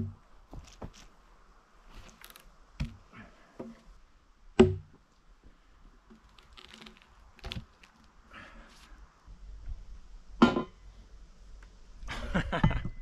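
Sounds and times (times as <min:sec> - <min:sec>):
wooden knocks of log and tool: 0:04.6 - 0:05.0.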